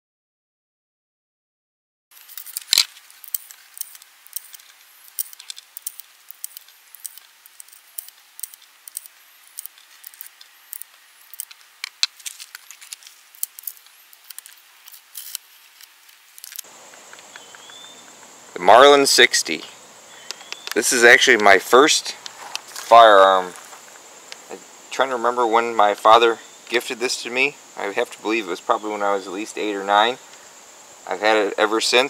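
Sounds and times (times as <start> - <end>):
cartridges clicking and clinking: 2.1 - 18.0.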